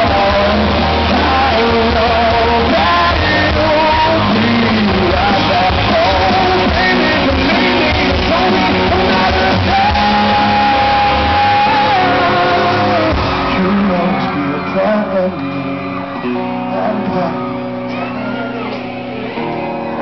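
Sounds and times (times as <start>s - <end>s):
man singing: 0.0s - 18.3s
deep bass: 0.0s - 20.0s
live rock band playing a ballad: 0.0s - 20.0s.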